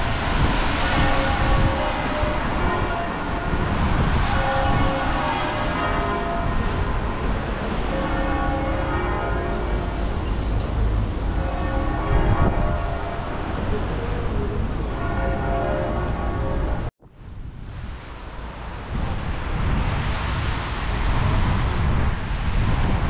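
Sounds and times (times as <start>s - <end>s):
church bells ringing: 0.0s - 16.9s.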